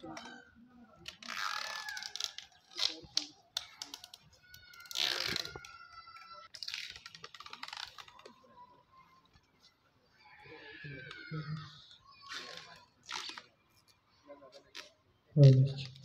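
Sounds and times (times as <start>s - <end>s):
small hard objects clicking: 1.4s - 5.7s.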